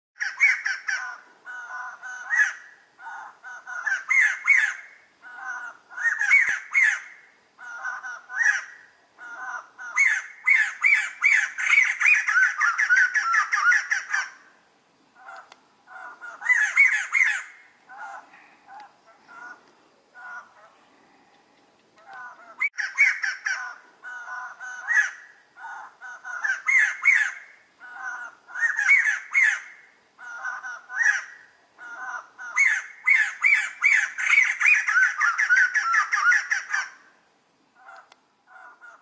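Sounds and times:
bird laughing call: 20.2 - 20.8.

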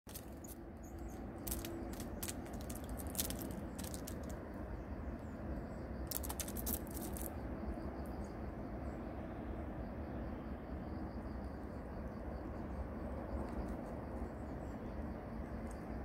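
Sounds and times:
squirrel claws scratching on bark: 0.1 - 4.4, 6.1 - 7.3.

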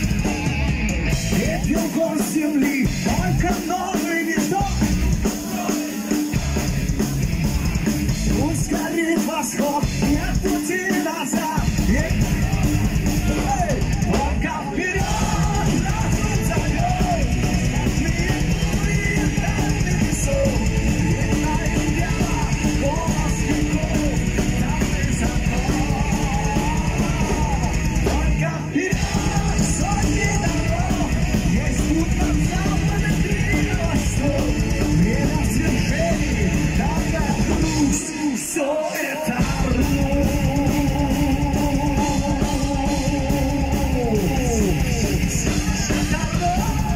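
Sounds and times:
bass and drum kit: 0.0 - 46.9
distorted electric guitars: 0.0 - 46.9
singer singing and shouting: 0.0 - 46.9.

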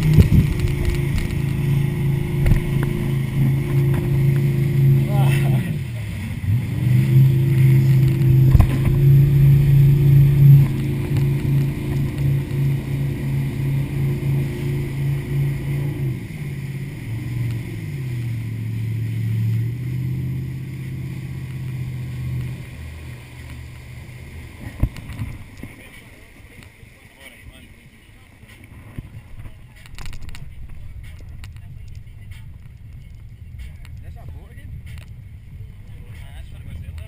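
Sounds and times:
motorboat engine running: 0.0 - 37.0.

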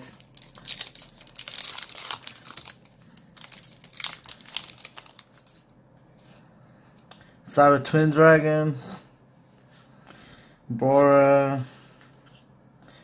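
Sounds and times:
foil wrapper crinkling and tearing: 0.0 - 5.6.

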